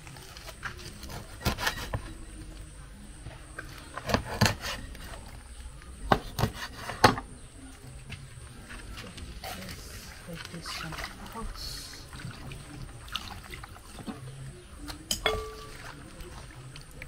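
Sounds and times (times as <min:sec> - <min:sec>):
utensils and cookware knocking: 0:15.1 - 0:15.8.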